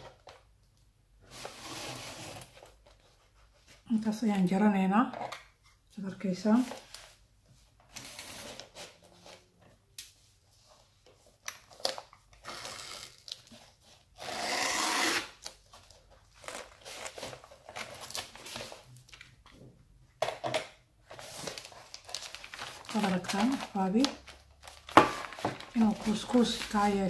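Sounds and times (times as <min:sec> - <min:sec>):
paper rustling and scraping: 0:01.2 - 0:03.8, 0:15.7 - 0:18.9, 0:21.1 - 0:27.0.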